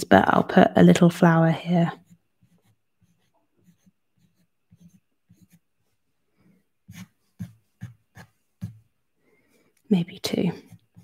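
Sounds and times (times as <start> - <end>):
pen nib scratching on paper: 1.8 - 5.8, 6.8 - 8.9, 10.2 - 11.0.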